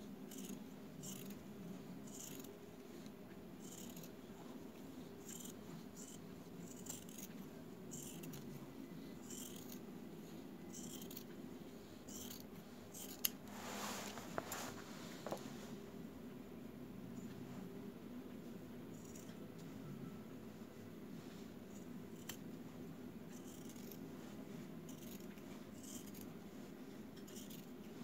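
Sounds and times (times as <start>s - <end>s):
faint low hum: 0.0s - 28.0s
shears snipping through fabric: 0.3s - 1.4s, 5.2s - 7.3s, 7.9s - 8.5s, 10.8s - 11.3s, 23.3s - 24.0s, 24.9s - 26.4s, 27.2s - 27.8s.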